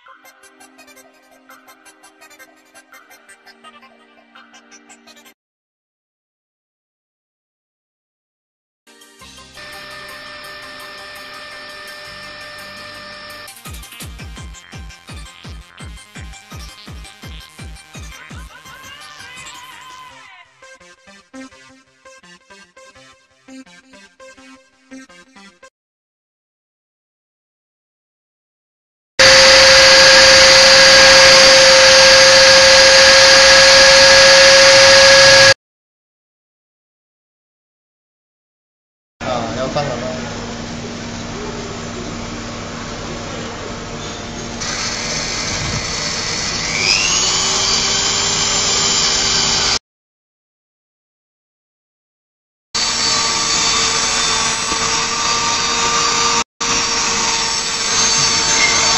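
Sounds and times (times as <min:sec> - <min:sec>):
homogenizer high whine: 0:29.2 - 0:35.6, 0:39.2 - 0:49.8.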